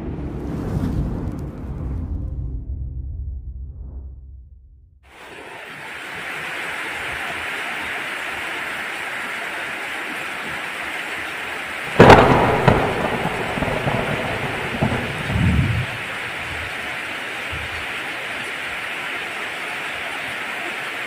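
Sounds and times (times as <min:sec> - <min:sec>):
heavy rain falling: 0:05.1 - 0:21.0
thunderclap rumbling: 0:11.9 - 0:17.9.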